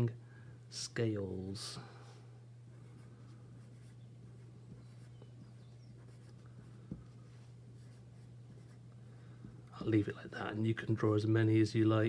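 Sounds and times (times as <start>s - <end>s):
steady low hum: 0.0s - 12.0s
pencil scratching on paper: 2.9s - 8.8s.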